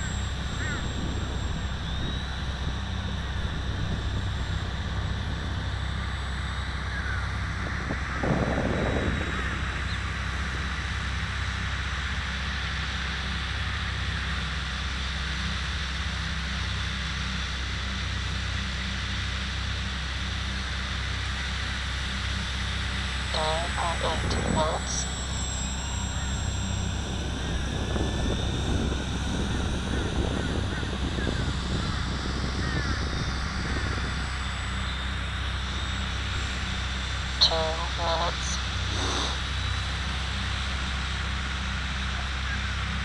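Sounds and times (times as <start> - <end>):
faint whine of model plane motor: 0.0 - 37.4, 38.0 - 43.0
wind on microphone: 7.3 - 11.0, 27.0 - 36.6.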